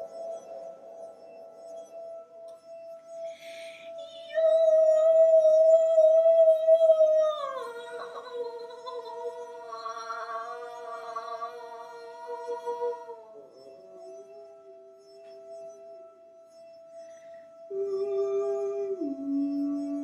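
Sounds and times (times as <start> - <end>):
woman singing long notes: 3.4 - 14.4, 17.7 - 20.0.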